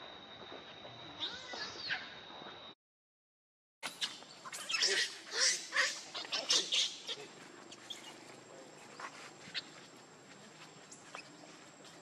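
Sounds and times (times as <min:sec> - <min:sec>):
macaque squealing: 0:03.9 - 0:08.2
faint rustles: 0:05.9 - 0:12.0.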